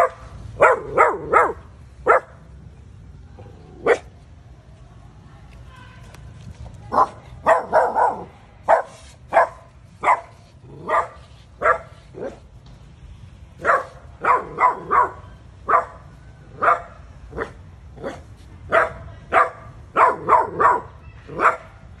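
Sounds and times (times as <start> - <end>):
small dog barking: 0.0 - 2.4, 6.9 - 12.4, 13.6 - 16.0, 16.6 - 21.8.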